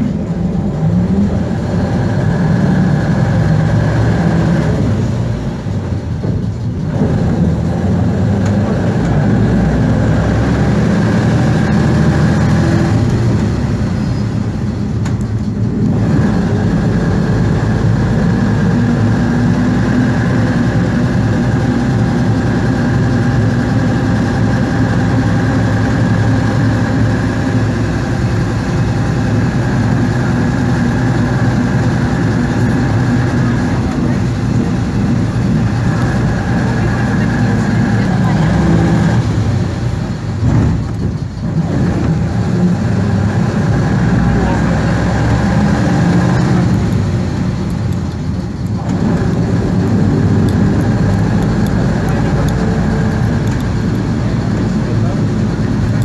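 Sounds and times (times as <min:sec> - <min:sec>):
bus diesel engine running: 0:00.0 - 0:56.0
steady whine: 0:00.0 - 0:56.0.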